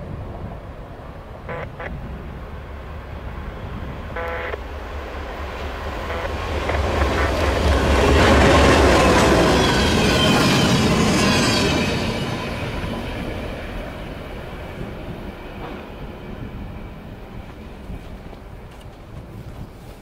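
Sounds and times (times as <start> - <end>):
diesel locomotive rumbling: 0.0 - 20.0
high wheel squeal: 8.8 - 12.6.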